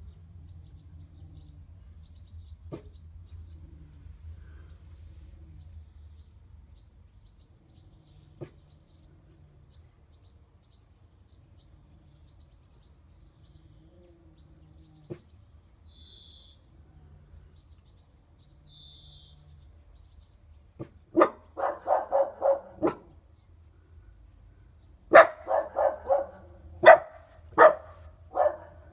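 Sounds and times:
dog barking: 20.8 - 23.2, 25.1 - 28.9.

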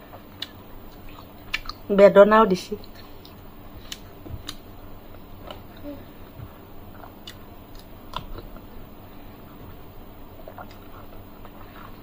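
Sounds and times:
wet mouth clicks and smacks: 0.4 - 1.8, 2.8 - 4.6, 7.0 - 8.5.

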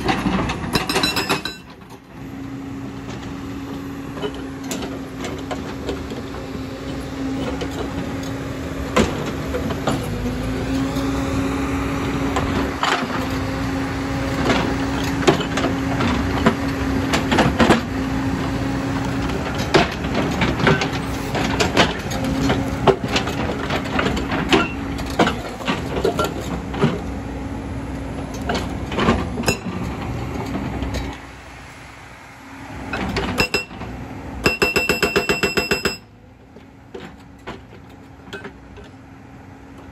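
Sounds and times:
diesel engine droning under load: 0.0 - 39.9
hydraulic breaker hammering stone: 34.4 - 36.1.

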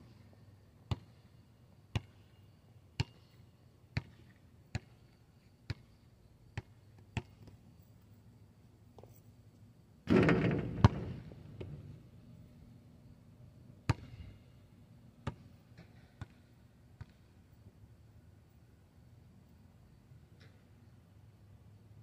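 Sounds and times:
ball bouncing on asphalt: 0.9 - 1.2, 1.9 - 2.3, 3.0 - 7.6, 10.1 - 12.0, 13.8 - 14.3, 15.2 - 17.3
ball hitting backboard and rim: 10.1 - 11.9, 13.9 - 14.2.

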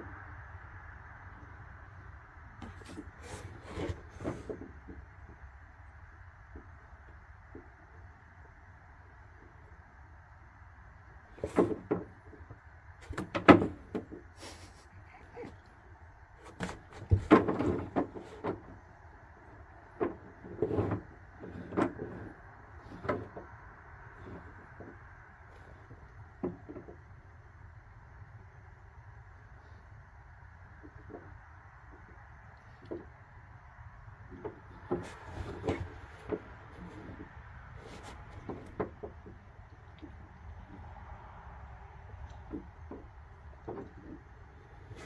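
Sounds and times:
dog sniffing and snuffling: 14.4 - 15.7
knocks and scuffs on wooden deck: 16.4 - 18.8.

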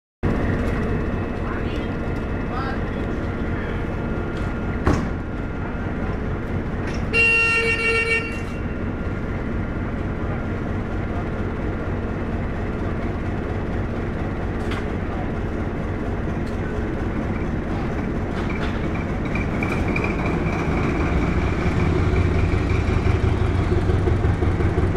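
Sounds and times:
low engine rumble: 0.2 - 24.9
short knock: 4.8 - 5.2
locomotive horn toot: 7.0 - 9.0.

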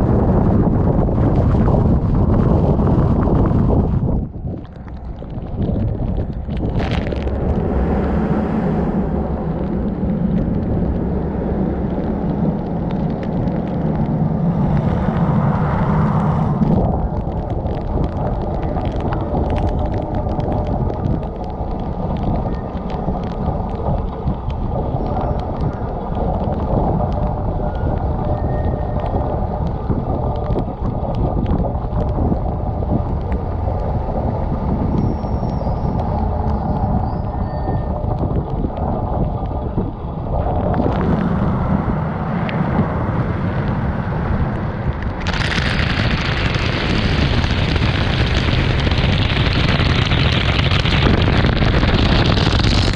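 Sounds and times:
water pouring over car: 45.2 - 52.9.

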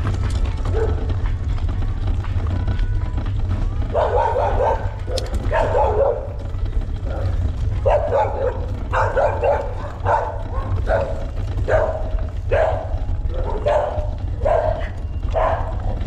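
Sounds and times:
wind rumble on microphone: 0.0 - 16.0
dog barking: 0.6 - 1.1, 3.9 - 16.0.

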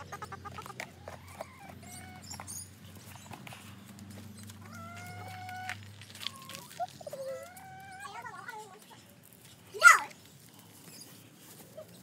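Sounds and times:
hen clucking: 0.0 - 3.5, 4.4 - 9.0.

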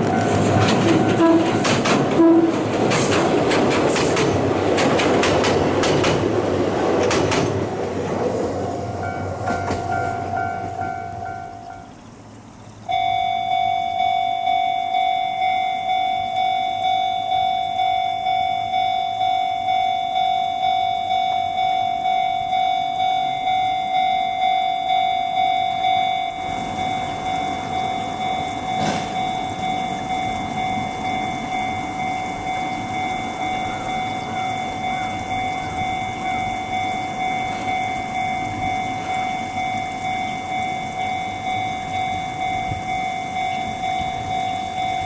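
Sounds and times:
level crossing warning bell ringing: 0.0 - 4.7, 8.7 - 12.0, 12.8 - 45.0
approaching train: 0.0 - 45.0.

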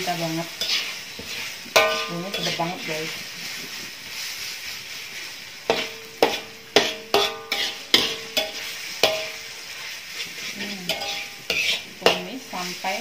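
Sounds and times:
oil sizzling: 0.0 - 13.0
metal spatula clanking on wok: 0.6 - 2.7, 5.7 - 9.4, 10.9 - 12.3.

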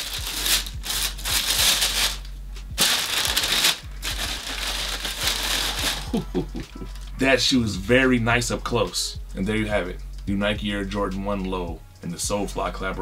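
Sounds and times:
tissue paper rustling: 0.0 - 2.2, 2.8 - 7.0.

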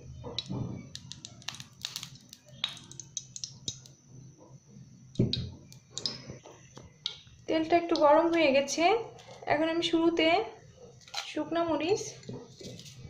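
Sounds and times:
oil crackling and popping in a pan: 0.4 - 4.0, 5.2 - 8.5.

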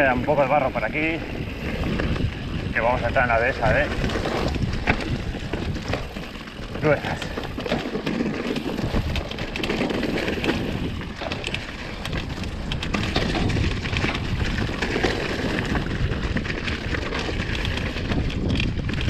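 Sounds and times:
bike clicks and rattles: 0.0 - 19.0
tyres rumbling on ground: 0.0 - 19.0
wind buffeting microphone: 0.0 - 19.0.

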